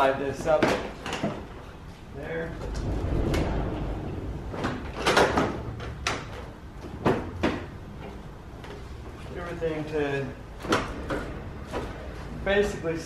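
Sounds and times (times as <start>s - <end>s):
low rumble: 2.1s - 6.9s.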